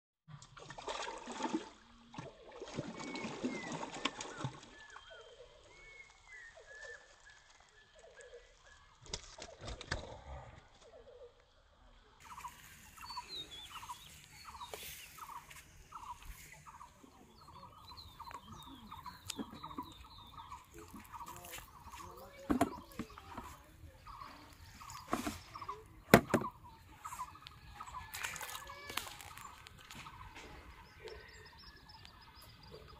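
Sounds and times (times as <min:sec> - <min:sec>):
birds calling: 0:12.2 - 0:32.9.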